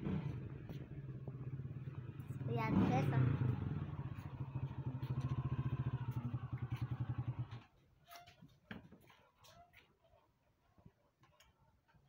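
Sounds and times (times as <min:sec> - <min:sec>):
motorcycle engine puttering: 0:00.0 - 0:07.8.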